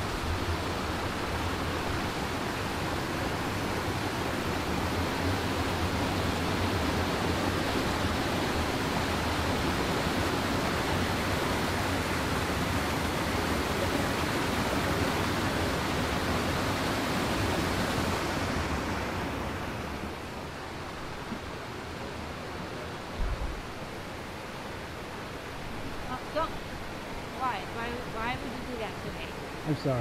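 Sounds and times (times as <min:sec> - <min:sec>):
stream rushing over boulders: 0:00.0 - 0:30.0.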